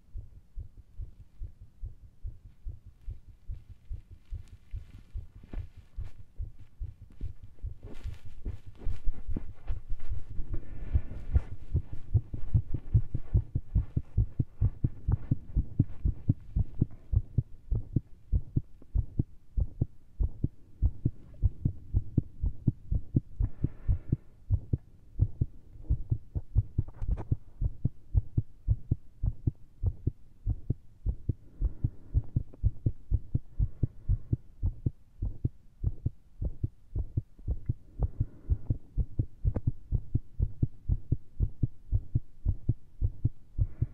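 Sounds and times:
fast irregular heartbeat thumps: 0:00.0 - 0:43.9.

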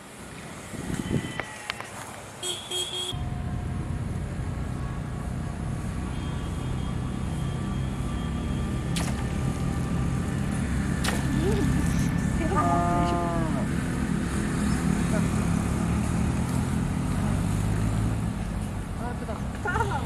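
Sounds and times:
motor engine droning: 0:03.2 - 0:18.6.

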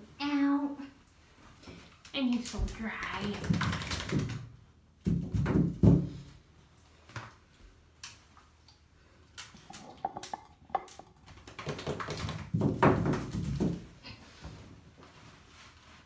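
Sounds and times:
dog claws clicking on tub: 0:09.4 - 0:12.5.

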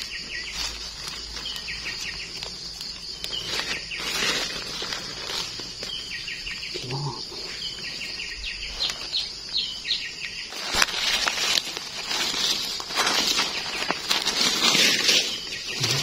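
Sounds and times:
dry leaves rustling: 0:00.0 - 0:06.7, 0:07.4 - 0:16.0
bird chirping: 0:00.0 - 0:11.3, 0:12.1 - 0:16.0.

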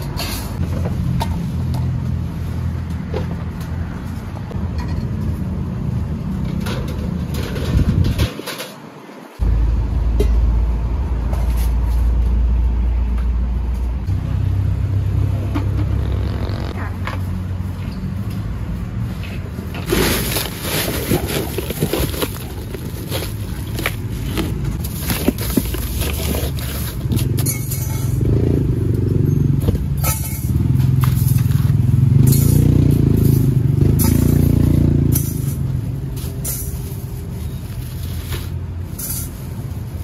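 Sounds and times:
passing traffic rumble: 0:00.0 - 0:40.0
crushed ice crunching: 0:19.8 - 0:27.2.

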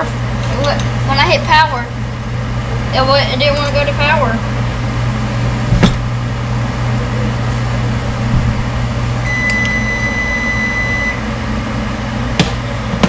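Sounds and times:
microwave oven humming: 0:00.0 - 0:13.0
long electronic beep: 0:09.2 - 0:11.2.

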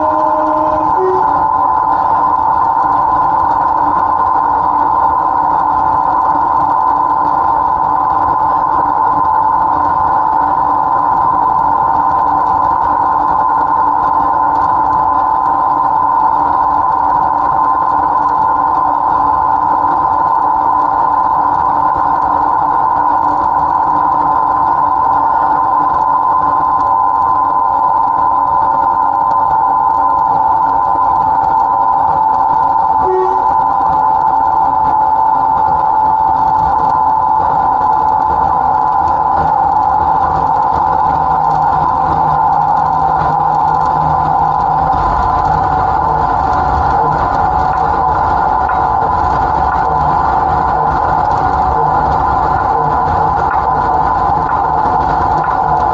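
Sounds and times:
diesel locomotive engine drone: 0:00.0 - 0:55.9.

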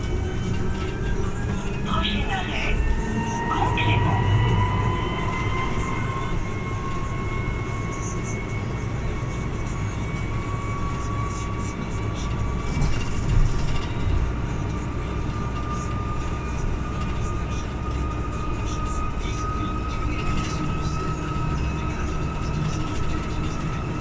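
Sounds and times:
low road rumble: 0:00.0 - 0:24.0.

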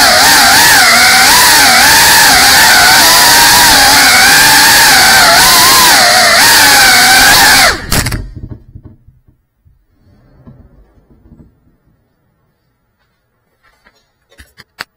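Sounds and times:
drone motors whining: 0:00.0 - 0:08.3
drone landing clatter: 0:07.7 - 0:09.8.

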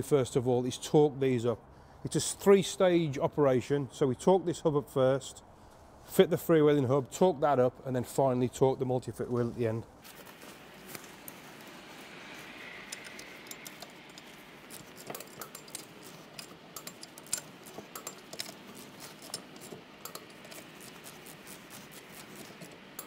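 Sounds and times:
torque wrench clicking: 0:12.8 - 0:23.0.

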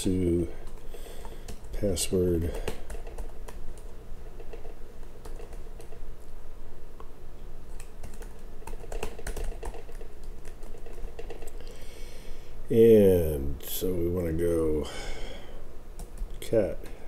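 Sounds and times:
steady low hum: 0:00.0 - 0:17.0
computer keyboard typing: 0:00.6 - 0:06.0, 0:07.7 - 0:11.7, 0:16.0 - 0:16.4.

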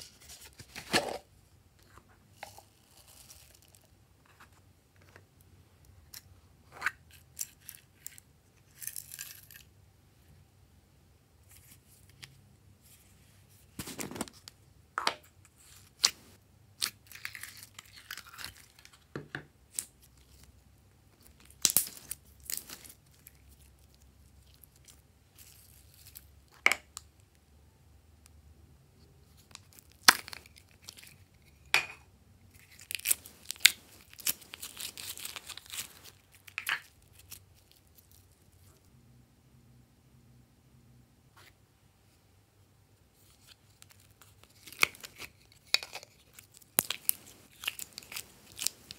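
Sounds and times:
crinkly crackling slime: 0:16.8 - 0:19.1, 0:19.7 - 0:26.3, 0:29.3 - 0:31.5, 0:32.5 - 0:38.8, 0:43.2 - 0:48.9.

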